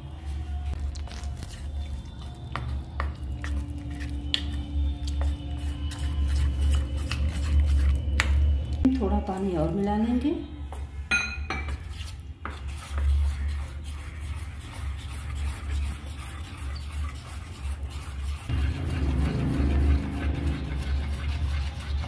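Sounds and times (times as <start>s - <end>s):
spoon beating batter in a bowl: 0.9s - 9.9s.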